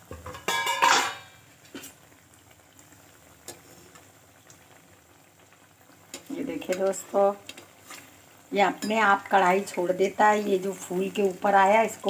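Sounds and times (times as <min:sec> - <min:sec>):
metal clatter on pan: 0:00.0 - 0:02.0
deep-frying sizzle with pops: 0:00.0 - 0:12.0.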